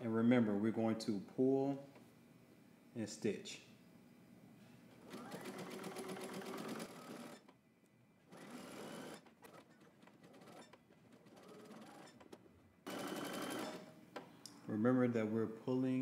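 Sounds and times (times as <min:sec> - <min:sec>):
sewing machine stitching: 0:05.0 - 0:07.5, 0:08.3 - 0:13.9.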